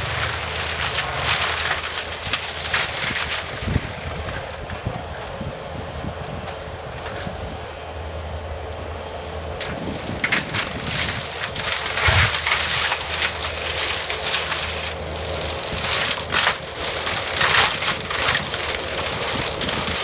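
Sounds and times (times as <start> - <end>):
wood crackling and splintering: 0.0 - 5.4, 9.6 - 20.0
loader engine running: 0.0 - 20.0.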